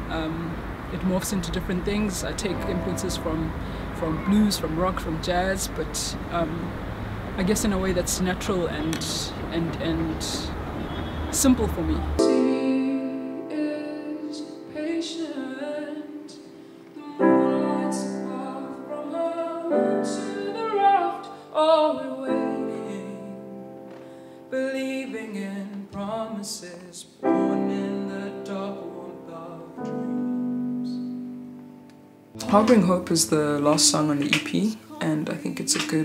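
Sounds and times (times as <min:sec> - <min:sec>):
ringing chords: 0:02.4 - 0:05.3
woman singing: 0:12.2 - 0:23.5, 0:24.5 - 0:31.1, 0:32.4 - 0:34.2, 0:34.8 - 0:36.0.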